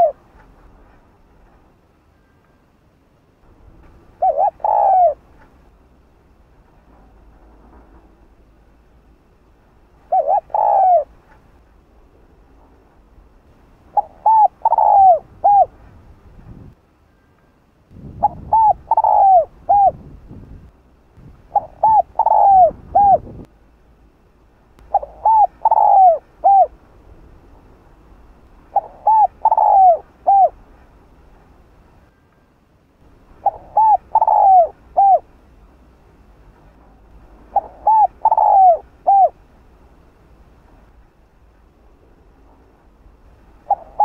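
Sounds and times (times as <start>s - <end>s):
dove cooing: 0.0s - 0.2s, 4.1s - 5.5s, 10.0s - 11.4s, 13.9s - 15.8s, 18.2s - 20.2s, 21.5s - 23.4s, 24.9s - 26.8s, 28.7s - 30.6s, 33.4s - 35.3s, 37.5s - 39.4s, 43.6s - 44.0s
low rumble: 17.9s - 25.2s.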